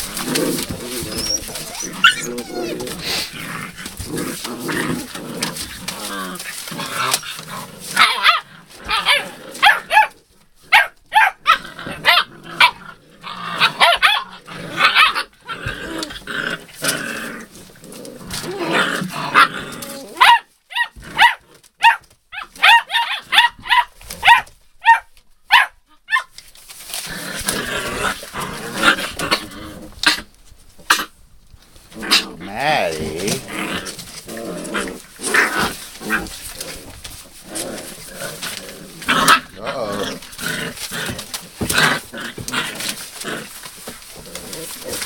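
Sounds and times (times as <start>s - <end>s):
paws scuffling on newspaper: 0.0s - 11.4s, 13.6s - 30.9s, 33.0s - 45.0s
puppies play growling: 0.0s - 20.2s, 26.8s - 31.2s, 31.8s - 45.0s
puppies yipping and barking: 0.5s - 3.3s.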